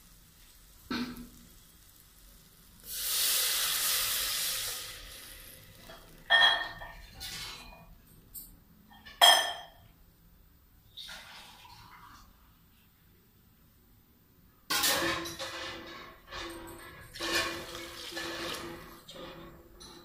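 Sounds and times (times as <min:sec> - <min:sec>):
water sizzling in hot pot: 0:00.0 - 0:07.9, 0:14.9 - 0:19.3.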